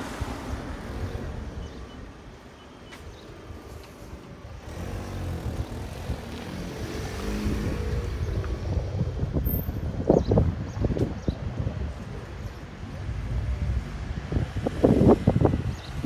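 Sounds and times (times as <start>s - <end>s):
vehicle engine passing by: 4.6s - 9.0s.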